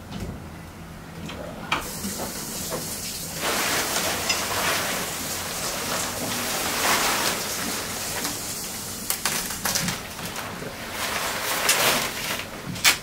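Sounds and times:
cloth rustling and crinkling: 0:03.4 - 0:08.6, 0:09.2 - 0:12.7.

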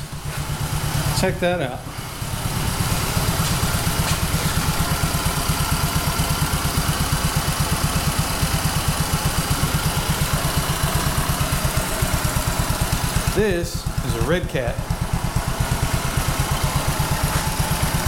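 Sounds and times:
mini bike engine idling: 0:00.0 - 0:18.0.

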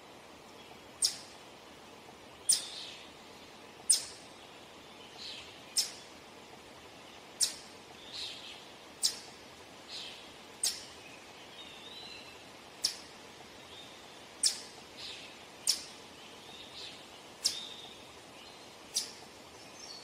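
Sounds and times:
chipmunk chip calls: 0:01.0 - 0:01.3, 0:02.4 - 0:02.9, 0:03.8 - 0:04.2, 0:05.2 - 0:06.1, 0:07.4 - 0:08.4, 0:09.0 - 0:09.3, 0:10.0 - 0:11.0, 0:11.8 - 0:13.1, 0:14.4 - 0:16.0, 0:16.6 - 0:18.0, 0:18.9 - 0:19.3.

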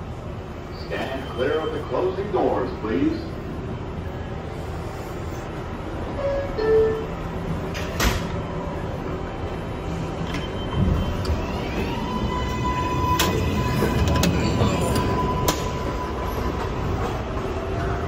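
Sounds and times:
train wheels rumbling on rail: 0:02.1 - 0:18.0
rail joint clicks: 0:13.0 - 0:15.9.

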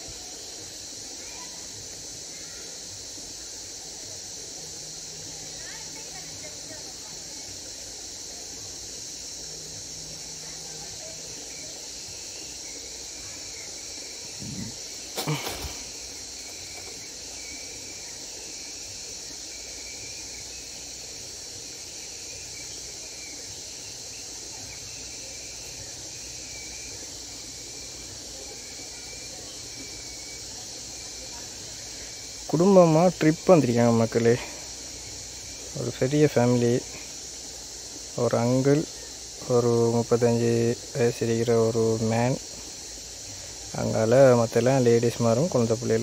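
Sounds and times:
high insect chorus: 0:00.0 - 0:46.0.

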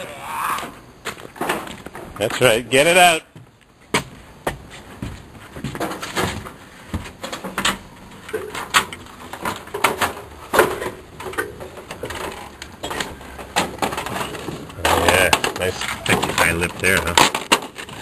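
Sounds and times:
knocks and clanks on ladder: 0:08.4 - 0:18.0.

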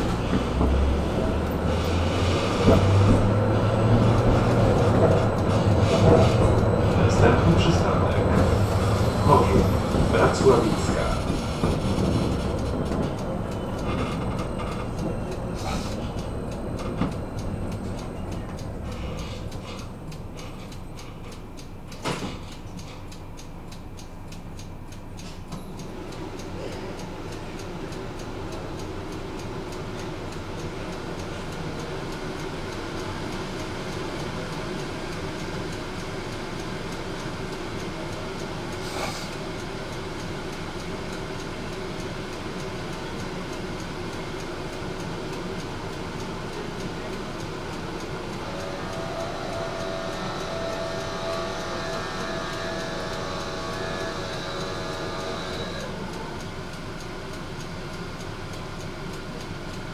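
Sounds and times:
tram rumbling on rails: 0:00.0 - 0:59.9
high-pitched whine: 0:48.4 - 0:56.3.

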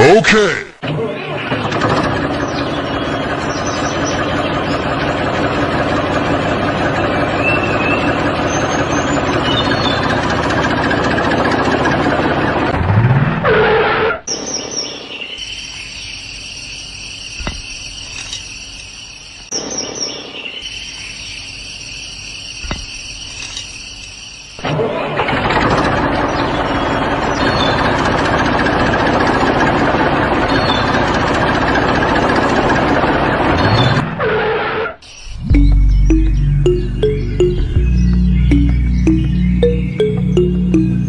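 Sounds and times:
tractor engine running: 0:00.0 - 0:13.0, 0:17.1 - 0:18.7, 0:22.4 - 0:34.1, 0:35.2 - 0:41.0
birds chirping: 0:01.0 - 0:10.7, 0:14.3 - 0:24.6, 0:26.0 - 0:28.1, 0:35.0 - 0:41.0
high-pitched steady background: 0:35.3 - 0:41.0.

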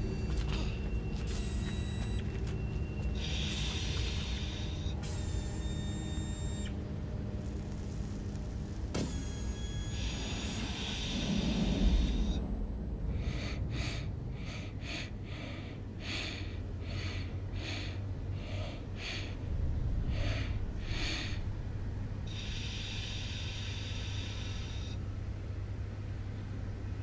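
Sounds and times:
low steady hum: 0:00.0 - 0:27.0
robot servo motors whirring: 0:01.3 - 0:02.2, 0:03.2 - 0:06.7, 0:07.4 - 0:12.2
monkey short breaths: 0:03.2 - 0:05.4, 0:22.3 - 0:25.0.

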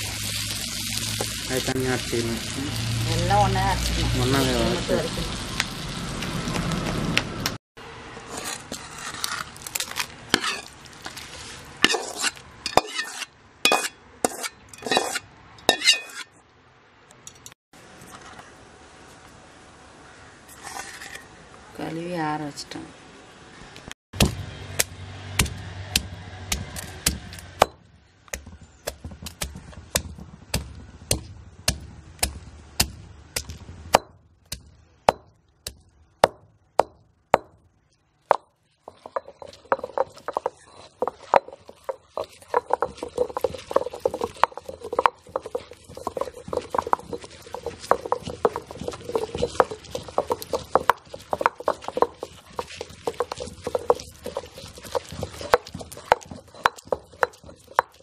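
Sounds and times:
stone pestle pounding in mortar: 0:24.2 - 0:37.6, 0:38.3 - 0:58.0.

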